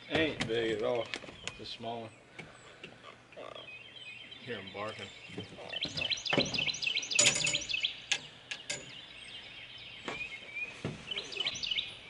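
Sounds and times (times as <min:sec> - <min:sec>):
small birds chirping: 0:00.0 - 0:12.0
sharp clicks and knocks: 0:05.3 - 0:09.0.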